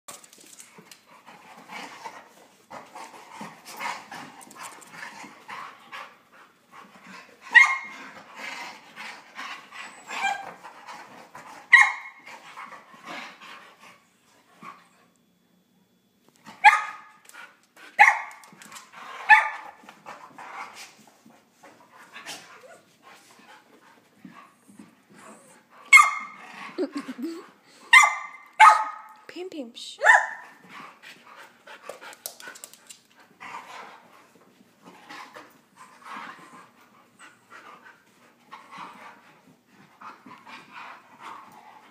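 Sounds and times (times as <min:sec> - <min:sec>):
puppies scuffling: 0:00.1 - 0:07.4.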